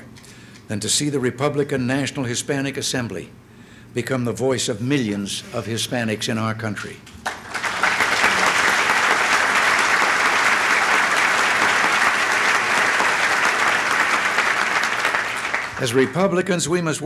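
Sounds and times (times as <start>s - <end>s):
audience applauding: 7.2s - 16.4s.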